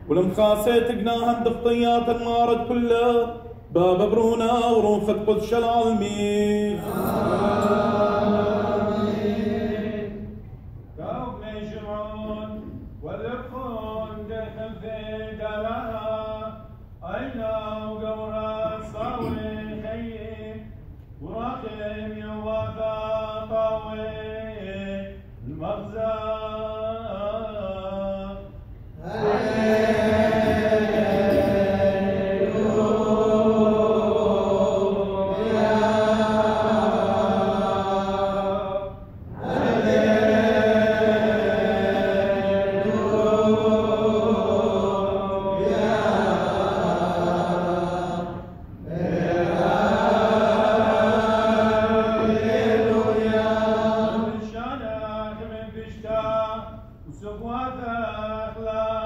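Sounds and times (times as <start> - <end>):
liturgical chant: 0.0 - 59.0.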